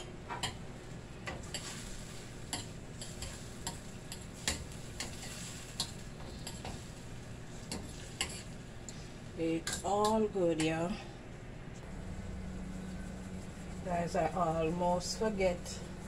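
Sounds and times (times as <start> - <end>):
metal spoon scraping a pan: 1.3 - 6.9, 7.6 - 9.0.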